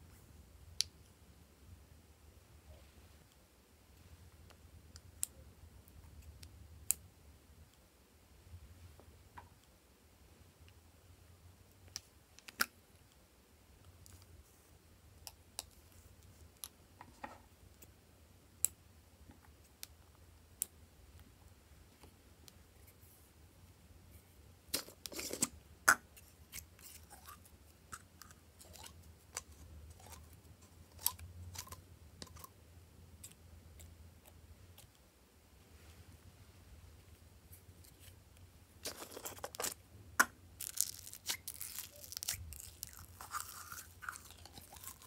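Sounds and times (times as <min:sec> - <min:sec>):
jar lid crackling open: 0:38.8 - 0:45.0
sticky slime crackles: 0:40.6 - 0:45.0.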